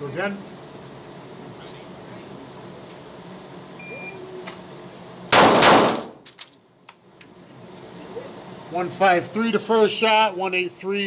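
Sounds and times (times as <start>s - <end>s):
range timer beep: 3.8s - 4.2s
gunshot echo: 5.3s - 6.2s
pistol shots: 5.3s - 6.2s.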